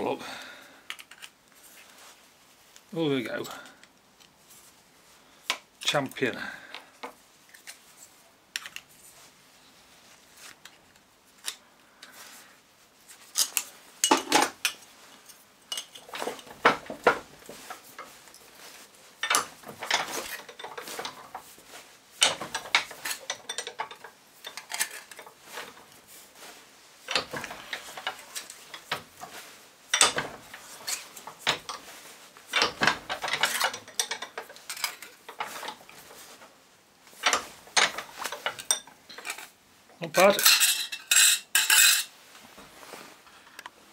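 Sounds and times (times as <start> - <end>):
metal clinks and scrapes in a vise: 13.1 - 36.4, 37.2 - 39.6, 40.2 - 42.1.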